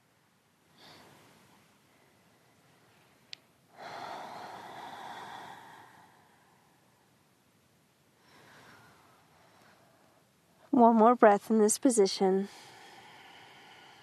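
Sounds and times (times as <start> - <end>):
slow breathing: 0.7 - 7.4, 8.1 - 10.6, 12.4 - 14.0.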